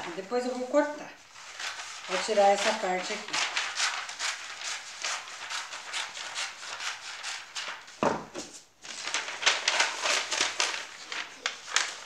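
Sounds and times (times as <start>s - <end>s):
paper rustling and bumping: 1.4s - 12.0s
scissors cutting paper: 1.6s - 7.7s.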